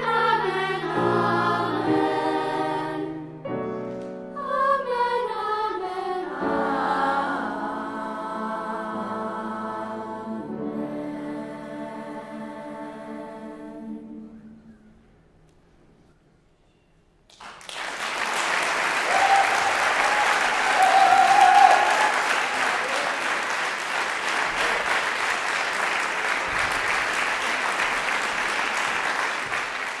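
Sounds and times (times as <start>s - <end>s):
audience applause: 17.3s - 30.0s
person cheering: 19.0s - 23.2s.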